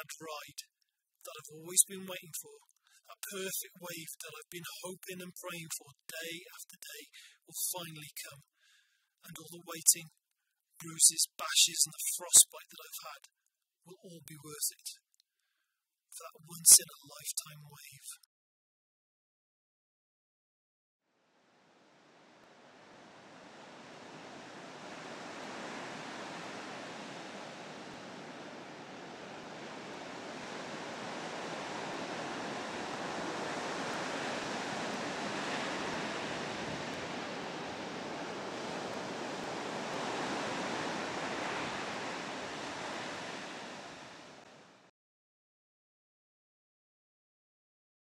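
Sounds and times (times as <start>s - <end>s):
ocean waves breaking: 21.5s - 44.9s.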